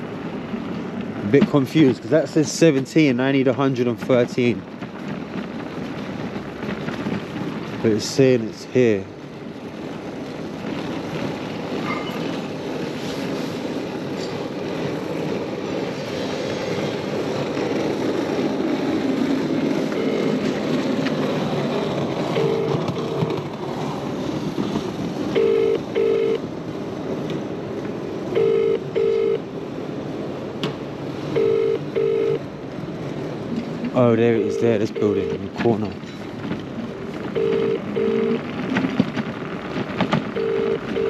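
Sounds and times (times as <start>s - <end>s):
steady background noise: 0.0s - 41.0s
telephone ringback tone: 22.3s - 23.3s, 25.4s - 26.4s, 28.4s - 29.4s, 31.4s - 32.4s, 37.4s - 38.4s, 40.4s - 41.0s.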